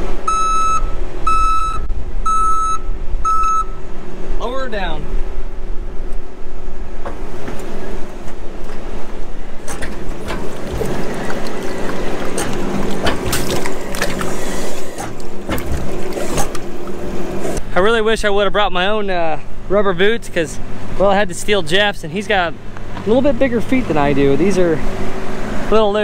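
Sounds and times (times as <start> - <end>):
heavy diesel tractor engine: 7.2 - 18.1.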